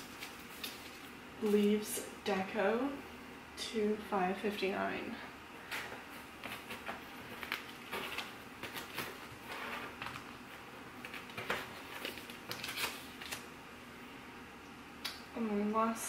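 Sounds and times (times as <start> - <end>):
paper sticker sheets rustling: 0.0 - 1.8, 5.7 - 13.5.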